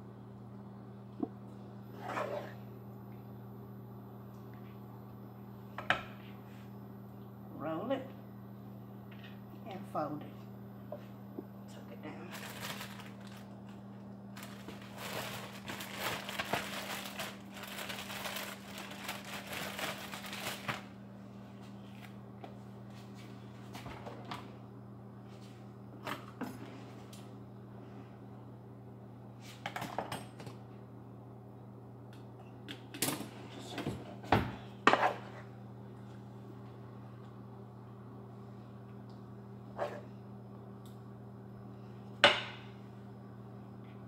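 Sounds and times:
steady low hum: 0.0s - 44.0s
plastic bag crinkling: 12.3s - 21.0s.

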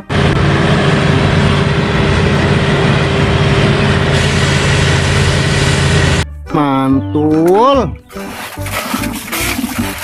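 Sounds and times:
diesel engine running: 0.0s - 6.2s.

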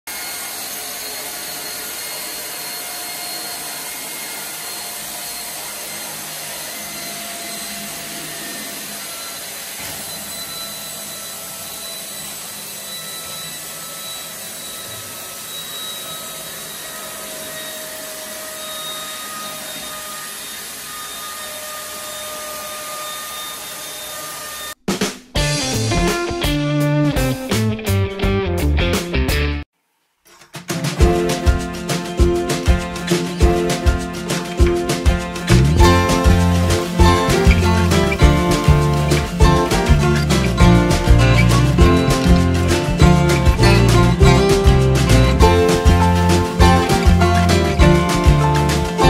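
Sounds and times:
robot vacuum motor whine: 0.1s - 24.8s, 34.6s - 49.0s.

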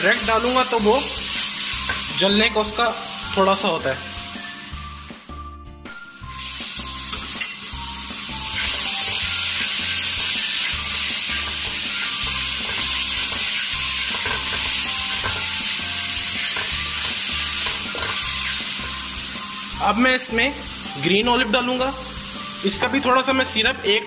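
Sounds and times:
vegetables sizzling in hot oil: 0.0s - 5.4s, 6.1s - 24.0s.

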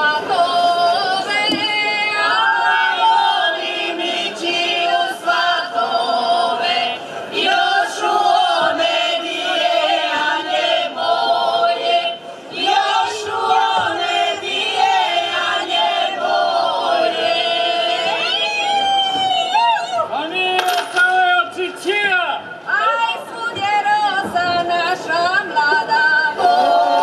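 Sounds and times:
women singing unaccompanied: 0.0s - 19.6s, 22.7s - 27.0s.

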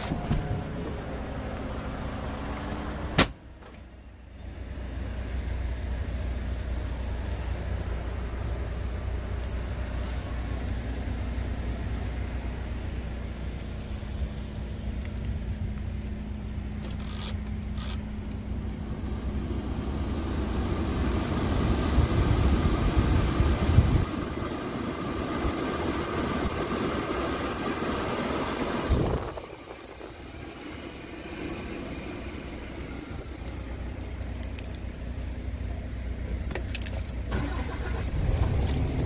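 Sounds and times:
ventilation blower air rush: 0.0s - 3.6s, 18.0s - 36.4s
diesel truck engine idling: 0.0s - 39.0s.

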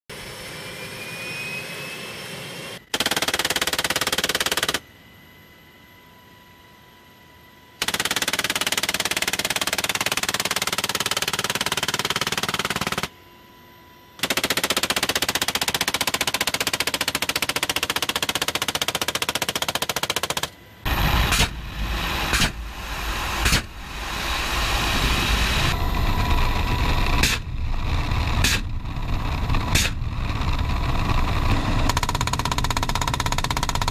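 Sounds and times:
machine gun bursts: 2.9s - 4.8s, 7.8s - 13.1s, 14.2s - 20.5s
helicopter rotor rumble: 14.2s - 33.9s.

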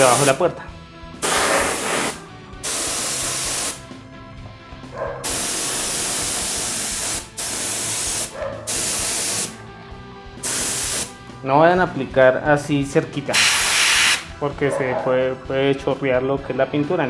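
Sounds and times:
paint spray gun hissing: 0.0s - 0.3s, 1.2s - 3.8s, 5.2s - 9.6s, 10.4s - 11.1s, 13.3s - 14.3s.

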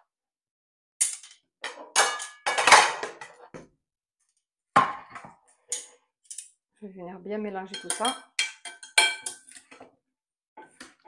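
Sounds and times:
kitchen utensils clattering: 1.0s - 3.5s, 7.7s - 9.9s.

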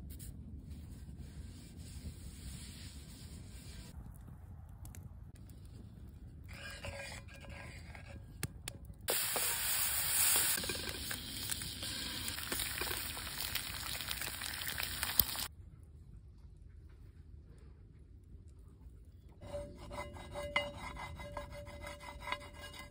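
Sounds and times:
eggs and bacon sizzling in pan: 9.1s - 15.5s.

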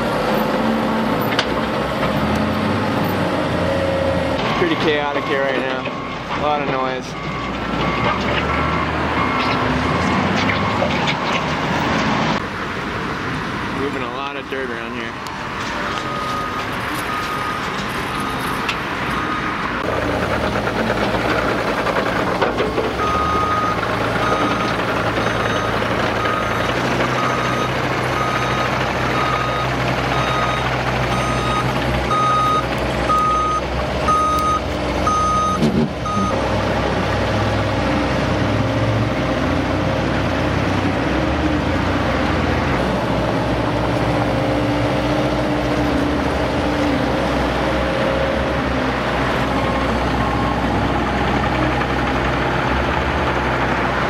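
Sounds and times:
machine engine rumble: 0.0s - 54.0s
backup alarm beeping: 23.0s - 26.6s, 27.2s - 36.4s.

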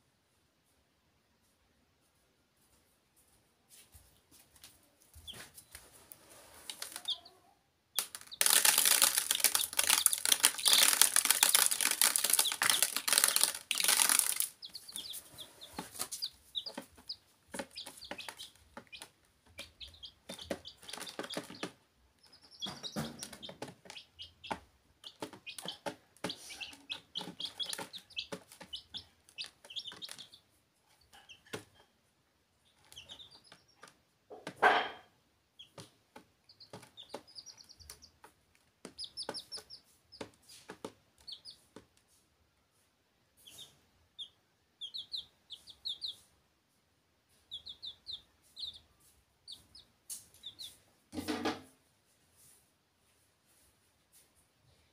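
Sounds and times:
chicks cheeping: 5.2s - 31.8s, 32.6s - 34.4s, 35.6s - 41.7s, 43.4s - 46.3s, 47.3s - 50.8s
taps and scratches on plastic: 8.0s - 21.8s, 22.5s - 30.3s, 35.7s - 42.0s.

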